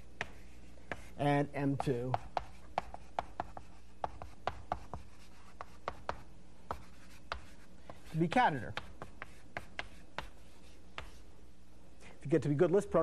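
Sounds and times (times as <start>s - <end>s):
chalk tapping and scraping: 0.0s - 11.3s
faint steady hum: 0.0s - 13.0s.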